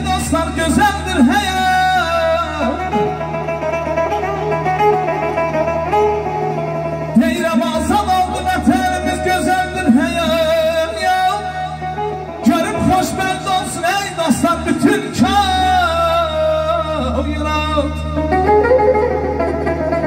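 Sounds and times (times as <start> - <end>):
man singing through a microphone: 0.0 - 3.7, 7.2 - 18.6
amplified instrumental backing: 0.0 - 20.0.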